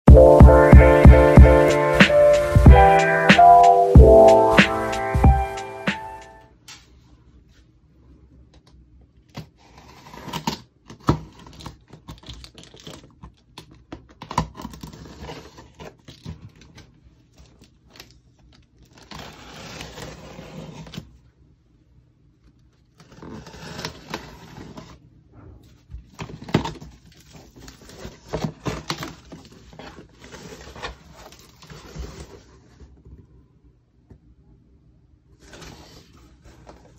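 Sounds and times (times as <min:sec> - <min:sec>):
plastic and tape crinkling: 0:11.1 - 0:19.6, 0:26.1 - 0:32.5.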